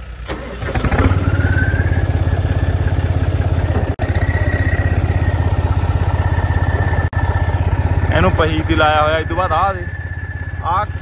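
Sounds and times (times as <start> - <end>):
tractor diesel engine running: 0.0 - 11.0
high whine climbing in pitch: 3.7 - 11.0.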